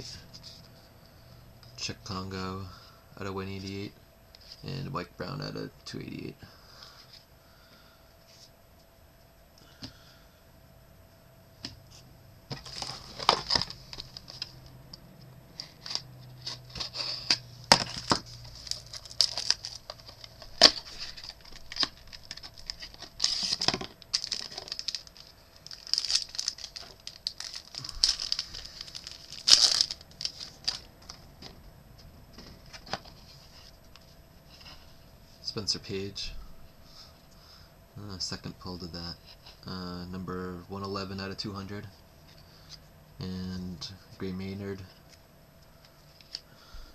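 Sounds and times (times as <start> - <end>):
wrapper tearing and crinkling: 12.5 - 14.5, 15.6 - 31.2.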